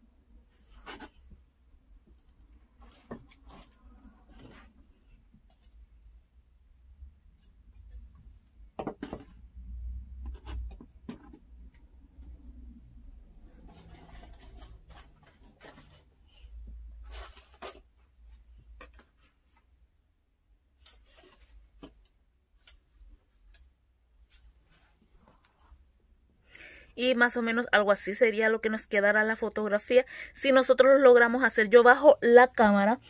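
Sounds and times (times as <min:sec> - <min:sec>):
rustling: 0:13.4 - 0:19.7.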